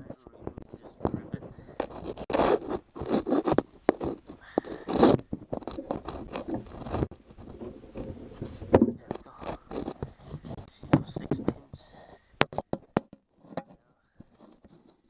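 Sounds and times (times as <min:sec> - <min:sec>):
scraping and rubbing: 0:00.0 - 0:15.0
handling clicks and knocks: 0:12.4 - 0:15.0.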